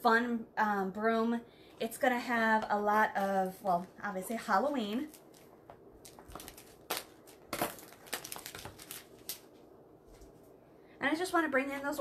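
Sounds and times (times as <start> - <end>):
ribbon crinkling and rustling: 4.4 - 10.5.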